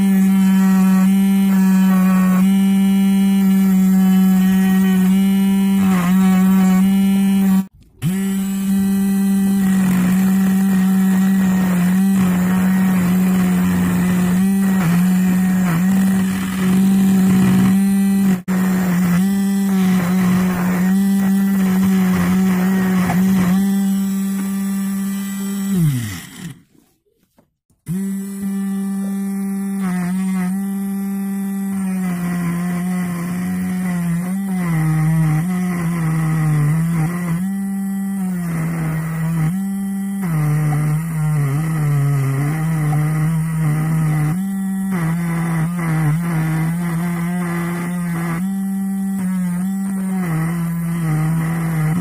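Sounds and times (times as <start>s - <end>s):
electric motor humming: 0.0s - 26.7s
tool scraping shaft: 0.0s - 26.9s.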